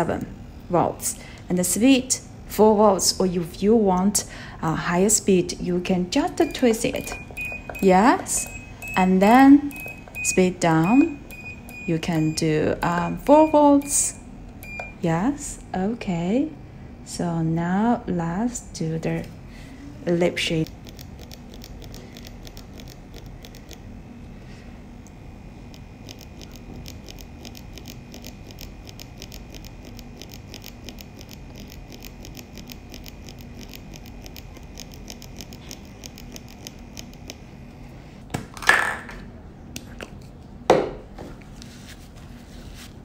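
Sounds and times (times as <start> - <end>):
tattoo pen whining and ticking: 6.2 - 13.6, 20.6 - 23.9, 25.4 - 37.8.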